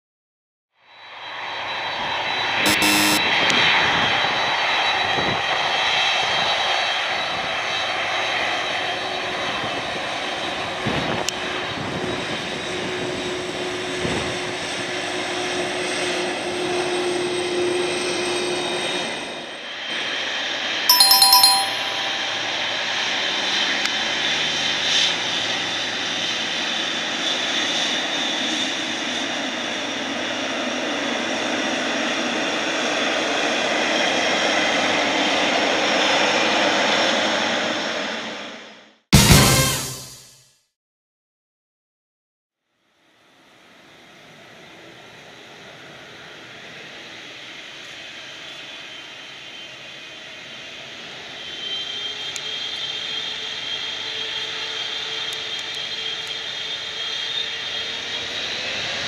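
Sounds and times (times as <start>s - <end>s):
two-tone ding-dong chime: 2.7s - 3.2s, 20.9s - 22.7s.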